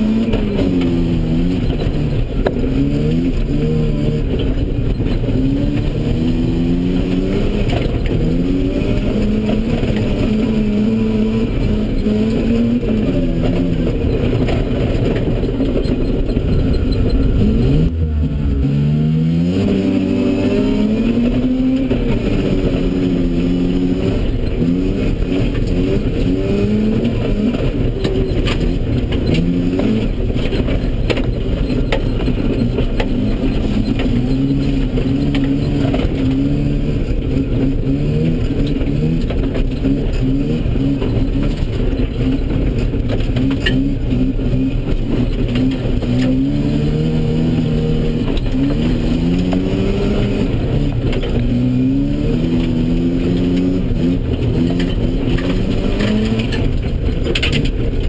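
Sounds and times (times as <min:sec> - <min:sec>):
rotary engine revving: 0:00.0 - 0:58.0.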